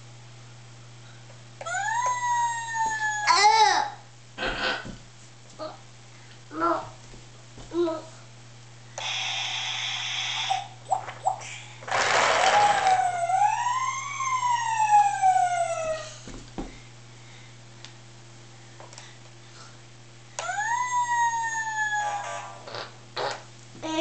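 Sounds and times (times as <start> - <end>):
toy siren wail: 1.6 - 3.5, 9.0 - 10.7, 12.1 - 16.2, 20.4 - 22.6.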